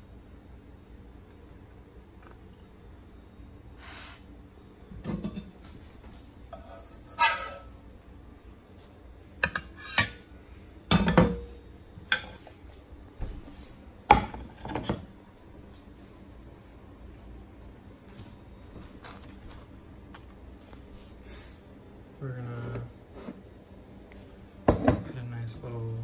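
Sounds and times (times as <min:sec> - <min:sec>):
metal spatula scraping pan and plate: 0:06.6 - 0:07.8, 0:09.5 - 0:10.2.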